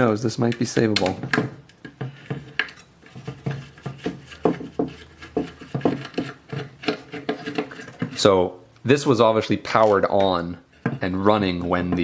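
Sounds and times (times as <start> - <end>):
clicks taps and scraping on metal: 0.0 - 8.3, 9.7 - 12.0.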